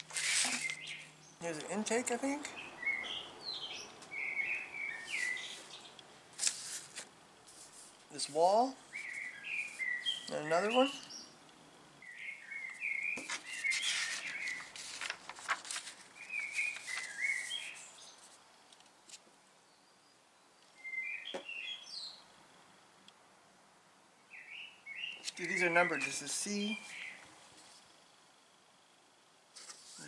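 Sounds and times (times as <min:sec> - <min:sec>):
paper pages rustling: 0:00.0 - 0:01.1, 0:05.1 - 0:08.1, 0:13.2 - 0:18.4, 0:29.6 - 0:30.0
small birds chirping: 0:00.0 - 0:06.9, 0:07.5 - 0:22.3, 0:24.2 - 0:28.2
faint background hiss: 0:00.0 - 0:30.0.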